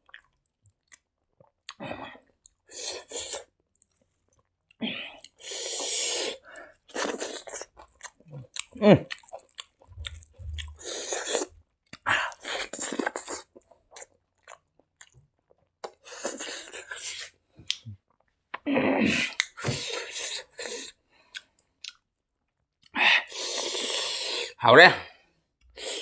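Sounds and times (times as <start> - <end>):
close chewing: 6.8 - 18.3
wet lip smacks and mouth clicks: 7.0 - 18.3, 21.3 - 22.0.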